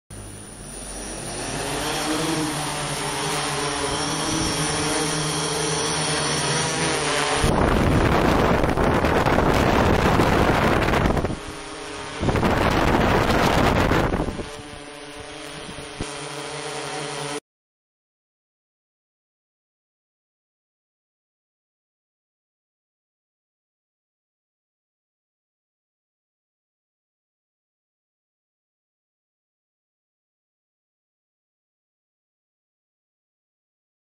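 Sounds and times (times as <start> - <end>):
multicopter propellers whirring: 0.1 - 17.4.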